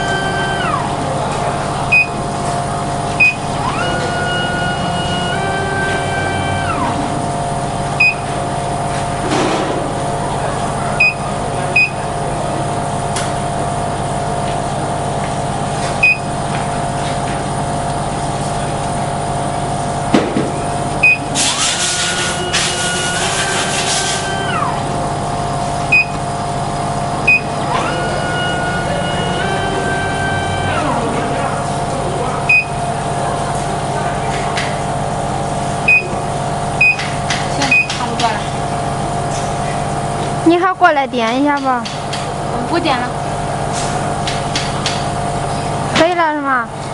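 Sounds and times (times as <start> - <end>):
motors whining: 0.0 - 12.5, 20.7 - 40.6
machine humming: 0.0 - 46.9
short high beeps: 1.9 - 2.2, 8.0 - 8.3, 11.0 - 11.2, 25.9 - 26.2, 32.5 - 32.8, 35.9 - 36.1.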